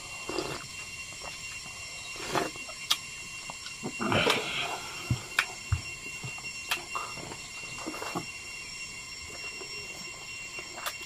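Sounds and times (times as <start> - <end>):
mouth clicks and eating sounds: 0.2 - 4.5.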